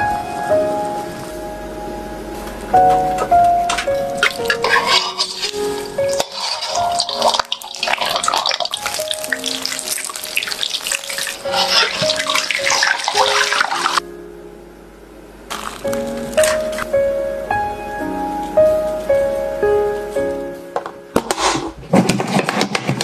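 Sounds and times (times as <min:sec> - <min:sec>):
background music: 0:00.0 - 0:21.6
chicken deep-frying in oil: 0:04.2 - 0:14.0.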